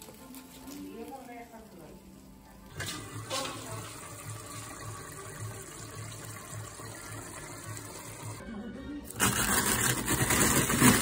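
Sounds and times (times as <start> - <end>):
pot bubbling: 1.8 - 8.4.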